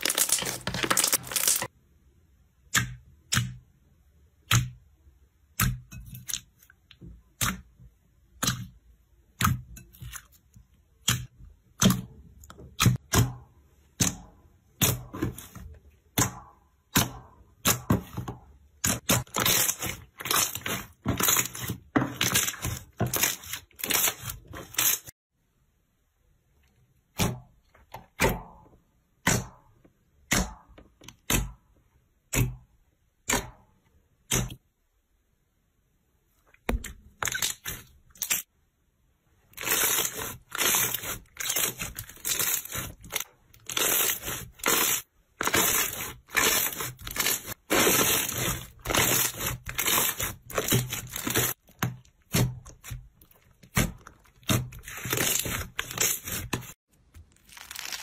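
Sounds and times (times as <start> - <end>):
slime crackling when squeezed: 57.2 - 58.0.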